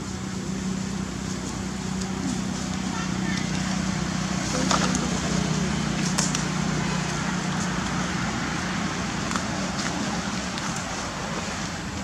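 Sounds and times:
constant low hum: 0:00.0 - 0:12.0
rushing background noise: 0:00.0 - 0:12.0.

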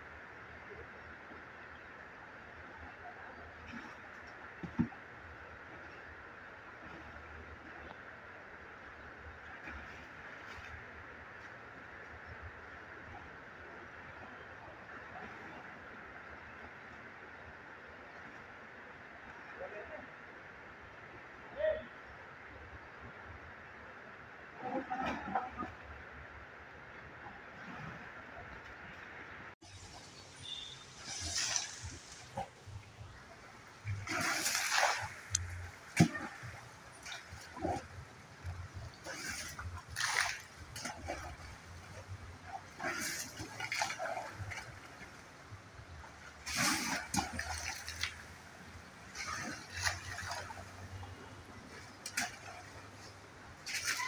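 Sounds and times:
elephant splashing in water: 0:29.6 - 0:45.2, 0:46.3 - 0:54.0.

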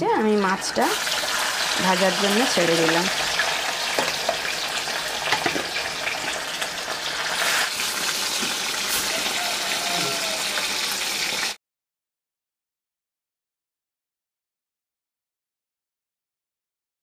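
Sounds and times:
fish sizzling in hot oil: 0:00.2 - 0:11.6.

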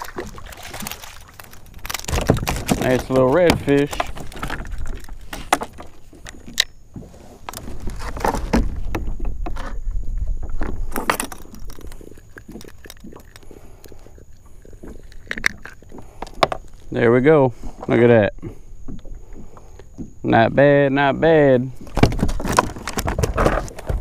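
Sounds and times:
clicks and knocks on kayak: 0:00.0 - 0:13.0, 0:14.8 - 0:16.9, 0:21.8 - 0:24.0.

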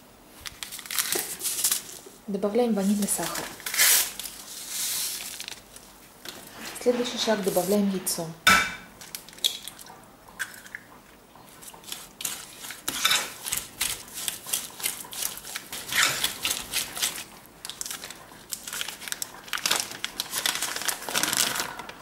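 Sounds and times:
paper wrapper crinkling: 0:00.4 - 0:02.2, 0:02.8 - 0:06.6, 0:11.6 - 0:22.0
fork scraping glass bowl: 0:11.8 - 0:13.6.

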